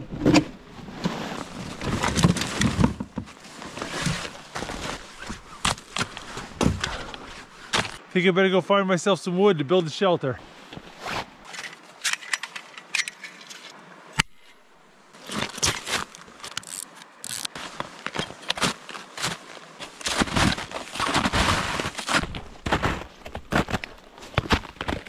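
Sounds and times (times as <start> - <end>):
snowshoe footsteps crunching snow: 3.3 - 8.0, 15.2 - 25.0
snowshoe bindings clicking: 15.3 - 25.0.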